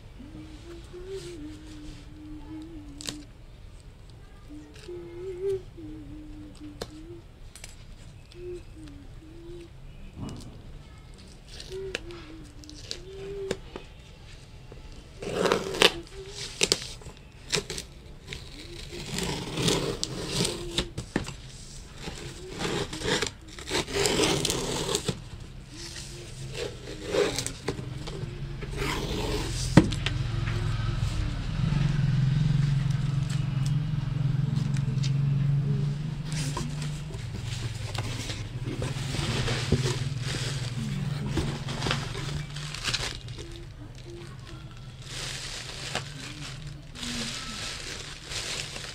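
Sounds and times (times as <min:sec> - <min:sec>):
steady low hum: 0:00.0 - 0:48.9
packing tape tearing: 0:15.2 - 0:21.0, 0:22.0 - 0:29.8, 0:36.3 - 0:48.9
cardboard box scraping and rustling: 0:15.2 - 0:29.9, 0:36.2 - 0:43.6.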